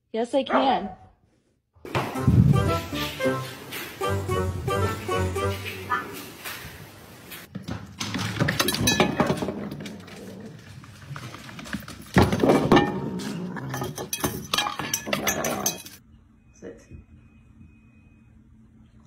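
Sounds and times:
metal bowl clanking on wood: 0:08.4 - 0:10.2, 0:12.1 - 0:16.0.

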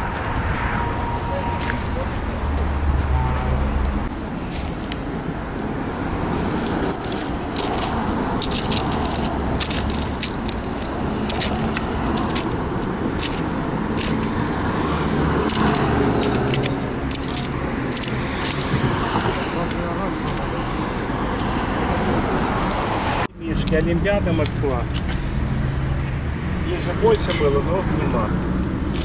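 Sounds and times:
road traffic hum: 0:00.0 - 0:29.0
metal coins clicking and sliding: 0:06.7 - 0:12.6, 0:13.2 - 0:14.4, 0:15.4 - 0:18.7.

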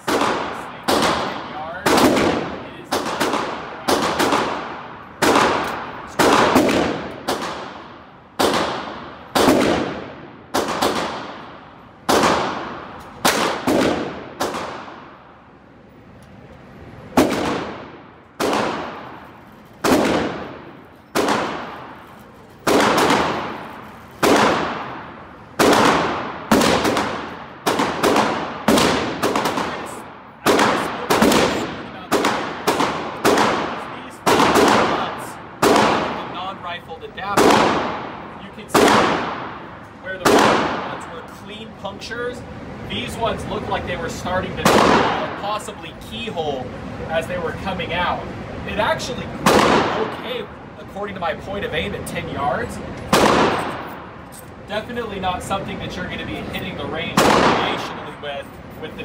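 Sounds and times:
echoing gunshots: 0:00.0 - 0:15.6, 0:17.0 - 0:41.3, 0:42.4 - 0:45.8, 0:48.5 - 0:50.7, 0:51.8 - 0:54.2, 0:55.2 - 0:58.4.

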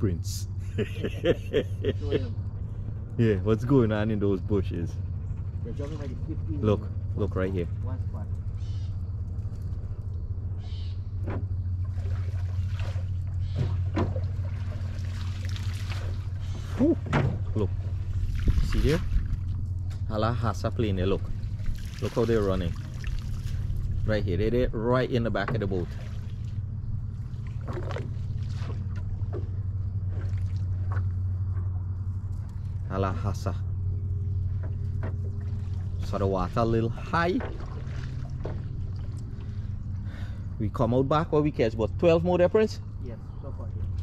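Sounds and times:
low hum: 0:00.0 - 0:44.0
wind rumble on microphone: 0:02.0 - 0:44.0
fish splashing in water: 0:11.7 - 0:19.8, 0:21.3 - 0:24.0, 0:25.8 - 0:31.3, 0:37.4 - 0:40.0.

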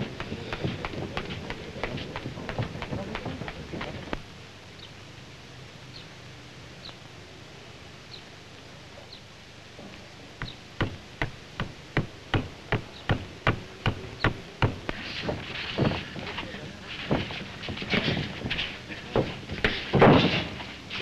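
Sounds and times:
boxing training blows thudding: 0:00.0 - 0:04.2, 0:10.4 - 0:20.6
film soundtrack hiss: 0:00.0 - 0:21.0.

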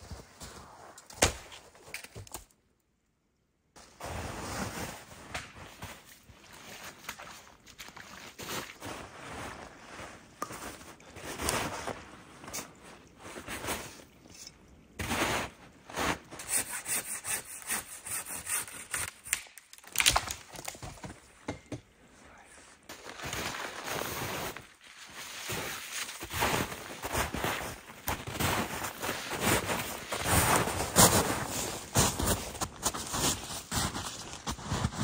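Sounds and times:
boots crunching in snow: 0:00.0 - 0:00.9, 0:15.0 - 0:16.4, 0:22.9 - 0:35.0.

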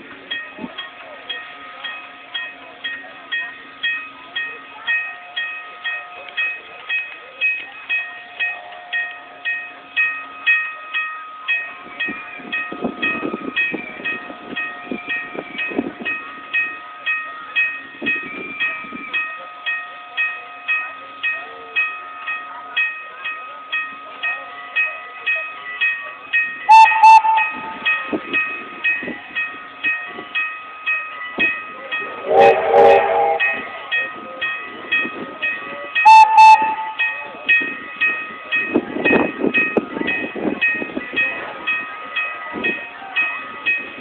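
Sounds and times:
train bell ringing: 0:00.0 - 0:44.0
steam whistle: 0:26.7 - 0:27.8, 0:32.2 - 0:33.7, 0:36.0 - 0:37.1.

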